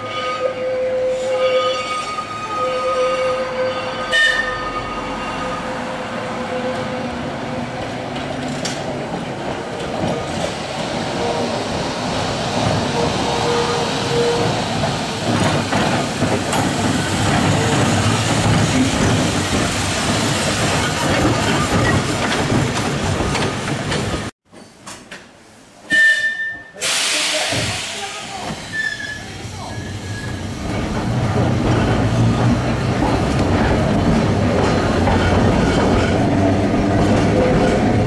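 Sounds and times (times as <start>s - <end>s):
tram wheels rumbling: 2.2s - 24.3s, 27.3s - 38.0s
electric tram whine: 29.5s - 38.0s.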